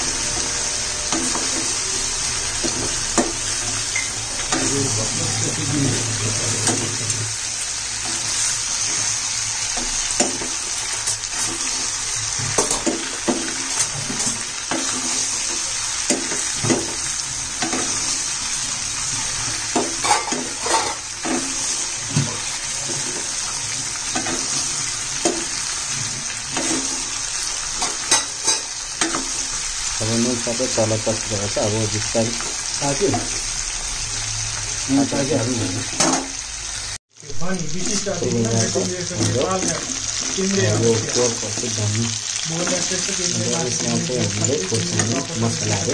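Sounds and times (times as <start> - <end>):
metal spoon scraping a pan: 0.0 - 4.8, 5.9 - 29.6, 37.8 - 45.9
pork sizzling in a pan: 0.0 - 45.9.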